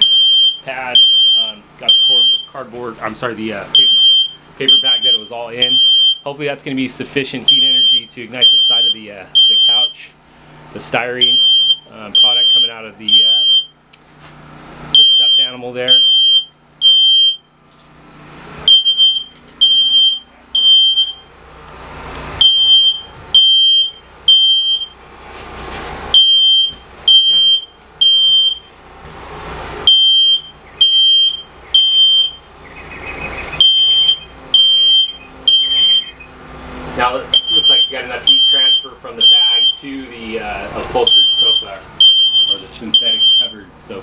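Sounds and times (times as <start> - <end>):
smoke alarm shrill beeps: 0.0 - 2.6, 3.7 - 6.3, 7.5 - 10.0, 11.2 - 13.8, 14.9 - 17.5, 18.6 - 21.3, 22.4 - 25.0, 26.1 - 28.7, 29.8 - 36.3, 37.3 - 39.9, 41.0 - 43.6.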